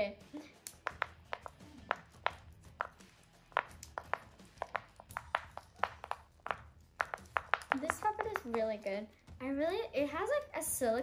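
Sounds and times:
fidget toy bubbles popping: 0.6 - 3.0, 3.6 - 8.9.

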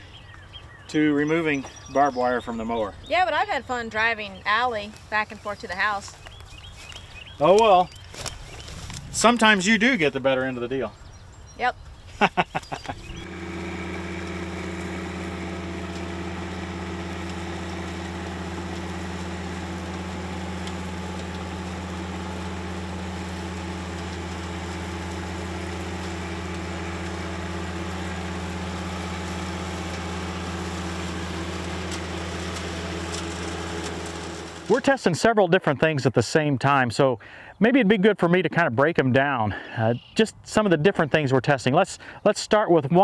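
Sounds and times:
tractor diesel engine running: 12.3 - 35.2.

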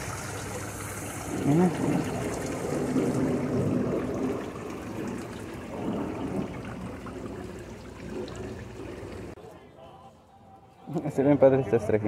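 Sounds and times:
fountain water trickling and splashing: 0.0 - 9.4.

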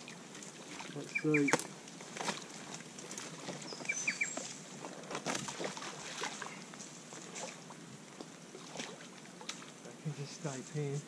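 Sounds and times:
light water sounds: 0.0 - 11.0
rustling and knocking of branches: 0.0 - 11.0
bird chirps: 1.1 - 1.7, 3.6 - 4.5.

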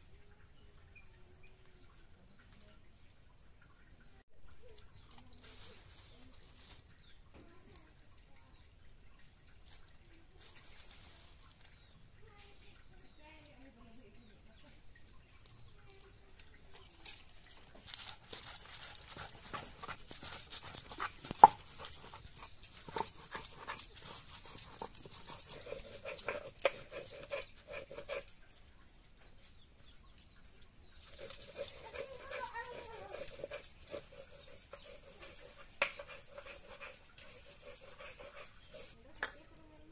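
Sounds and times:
dried chillies rustling and crackling: 4.4 - 8.3, 9.3 - 14.7, 15.5 - 28.4, 30.7 - 39.9
stone grinding on stone slab: 17.8 - 28.4, 31.0 - 39.4.

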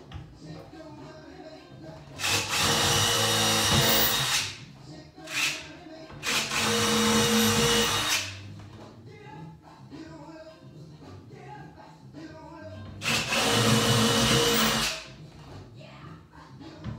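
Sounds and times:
power drill running: 2.2 - 4.5, 6.2 - 8.3, 13.0 - 15.0.

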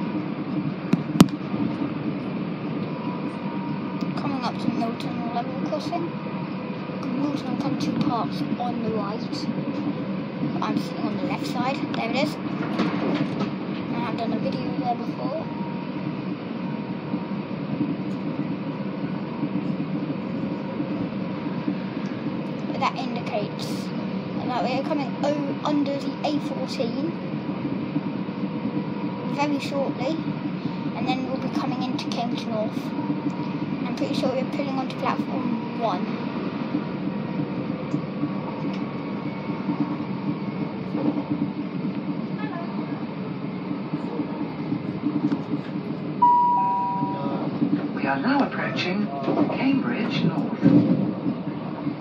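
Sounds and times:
train wheels on rail: 0.0 - 46.2, 47.0 - 52.0
faint steady whine: 46.2 - 47.6.

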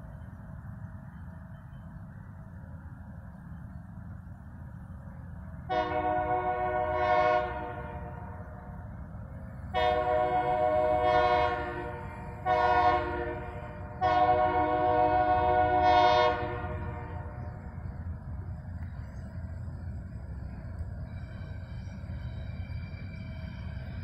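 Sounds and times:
locomotive air horn blasts: 5.7 - 8.6, 9.7 - 17.5.

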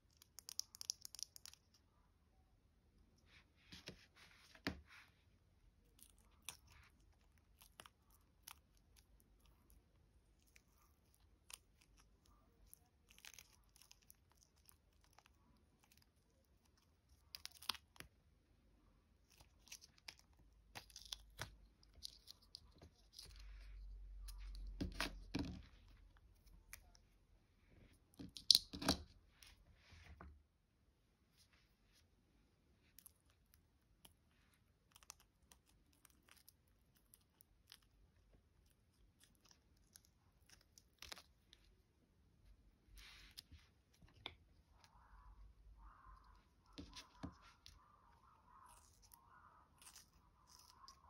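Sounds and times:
silicone mold crackling and peeling: 0.0 - 1.8, 5.7 - 18.2, 19.0 - 27.1, 32.8 - 42.0, 42.6 - 51.0.

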